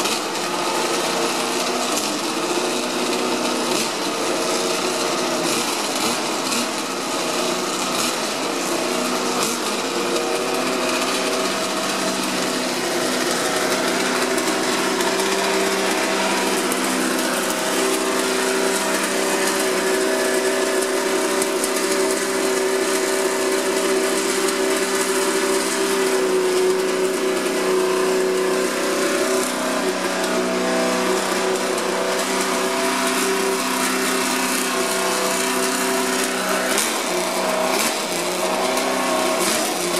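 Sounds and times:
racing engine idling: 0:00.0 - 0:27.9.

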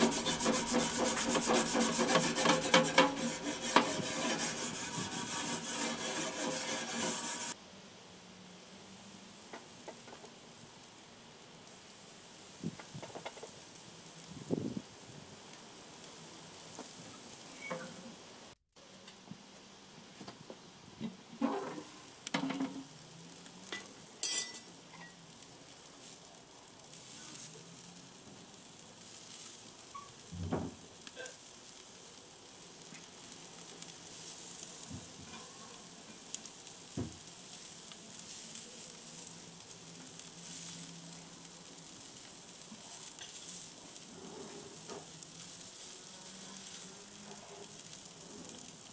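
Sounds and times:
spatula and fork clinking on grate: 0:00.0 - 0:04.4, 0:23.7 - 0:25.3, 0:43.1 - 0:43.5
meat sizzling on a grill: 0:00.0 - 0:48.9.

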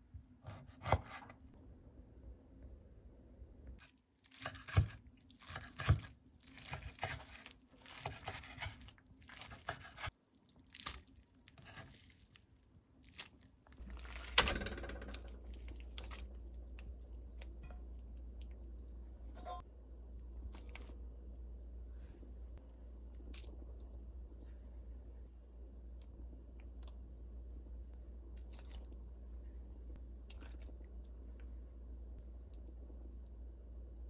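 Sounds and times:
steady low hum: 0:13.8 - 0:34.0.

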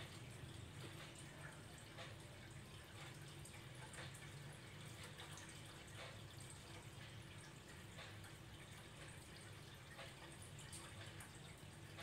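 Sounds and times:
faint ticks: 0:00.0 - 0:12.0.

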